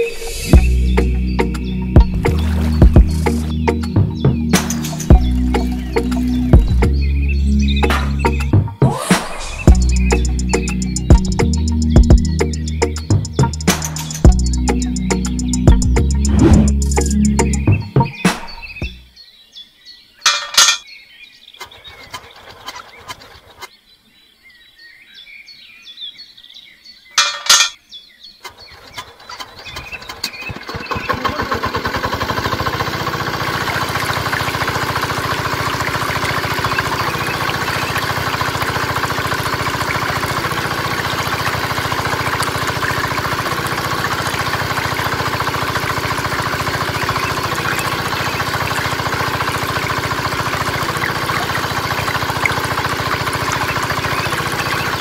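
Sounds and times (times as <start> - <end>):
small diesel engine running: 0.4 - 8.5, 9.7 - 17.6, 29.2 - 55.0.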